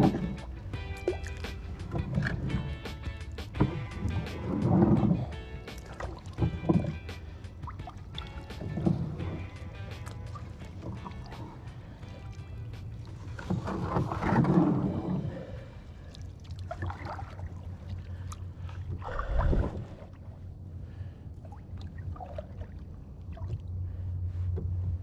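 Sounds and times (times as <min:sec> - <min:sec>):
plastic kayak scraping and knocking: 0:00.0 - 0:00.4, 0:01.5 - 0:07.2, 0:08.2 - 0:11.7, 0:13.0 - 0:15.3.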